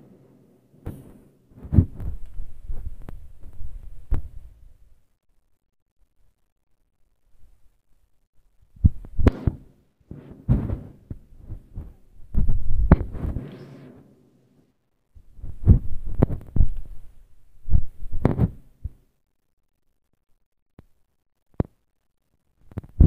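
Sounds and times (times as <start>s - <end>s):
fireworks booms and pops: 8.9s - 13.4s, 18.2s - 18.6s.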